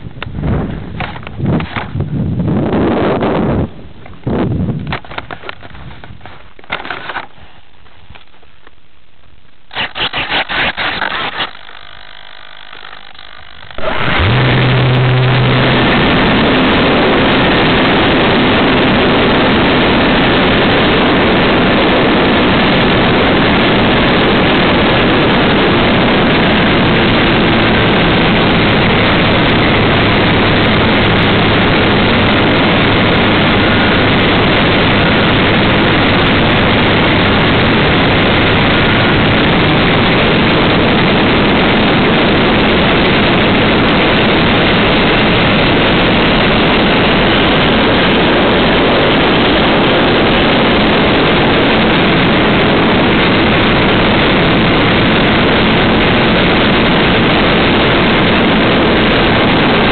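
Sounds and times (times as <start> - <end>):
model airplane motor: 9.7 - 59.9.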